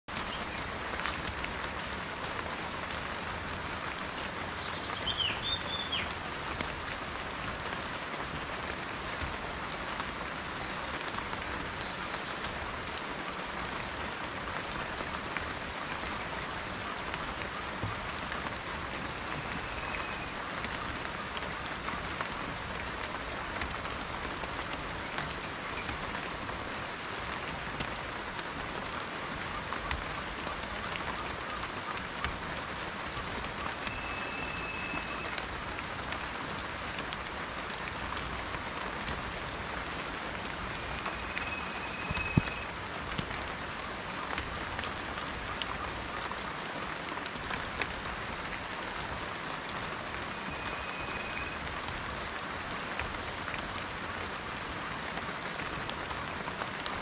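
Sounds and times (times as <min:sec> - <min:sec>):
rain pattering on leaves: 0:00.1 - 0:57.0
bird call: 0:04.6 - 0:06.1, 0:19.1 - 0:20.4, 0:33.6 - 0:35.4, 0:40.6 - 0:42.7, 0:50.3 - 0:51.6.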